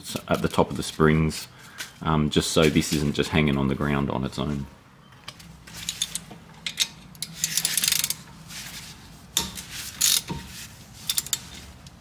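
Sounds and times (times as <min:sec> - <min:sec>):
ratchet clicking: 0:05.9 - 0:08.2, 0:09.4 - 0:11.6.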